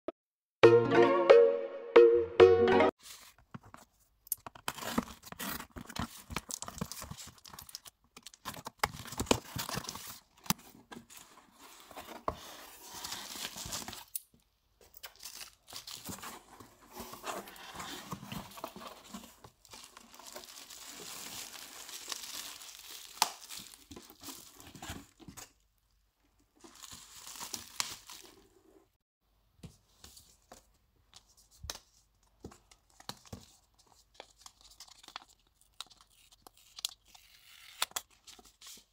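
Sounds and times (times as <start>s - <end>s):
bubble wrap crinkling: 12.8s - 14.2s, 15.0s - 16.6s, 17.2s - 25.2s, 26.6s - 28.6s.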